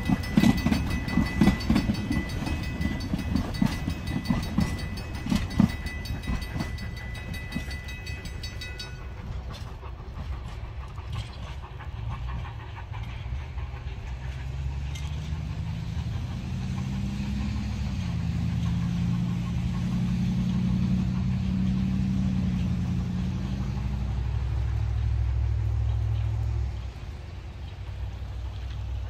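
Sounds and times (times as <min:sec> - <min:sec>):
motor engine humming: 0:00.0 - 0:27.0.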